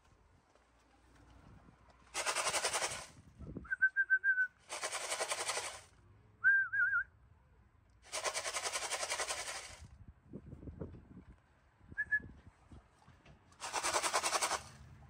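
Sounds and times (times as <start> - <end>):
rapid rattling: 2.2 - 3.2, 4.7 - 5.9, 8.1 - 9.8, 13.6 - 14.8
person whistling: 3.6 - 4.6, 6.4 - 7.1.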